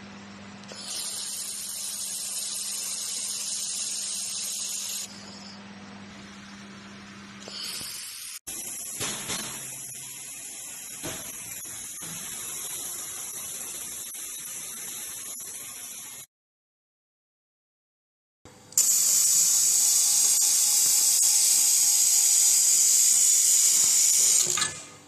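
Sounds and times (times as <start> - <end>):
thin high whine: 0.6 - 16.3
laser welder hissing: 0.7 - 5.1, 7.4 - 16.3, 18.8 - 24.6.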